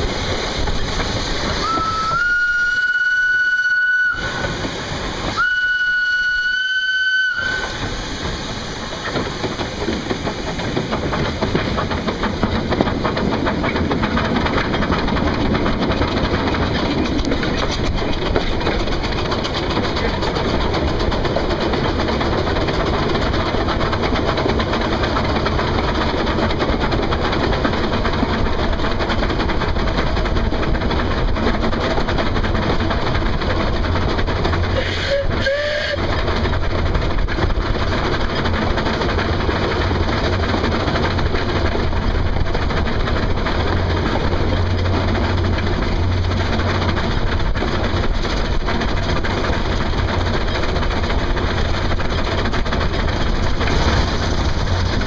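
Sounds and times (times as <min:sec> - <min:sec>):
train wheels clattering over rails: 0:00.0 - 0:55.0
steam locomotive whistle blasts: 0:01.6 - 0:04.6, 0:05.3 - 0:07.9, 0:34.8 - 0:36.0.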